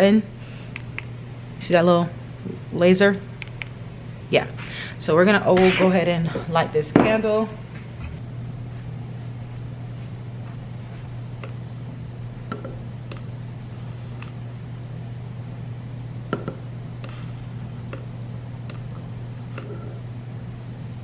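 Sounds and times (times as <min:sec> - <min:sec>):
steady low hum: 0:00.0 - 0:21.0
arc lighter buzzing: 0:00.7 - 0:01.2, 0:03.3 - 0:03.8, 0:11.1 - 0:11.6, 0:13.0 - 0:14.5, 0:16.3 - 0:20.0.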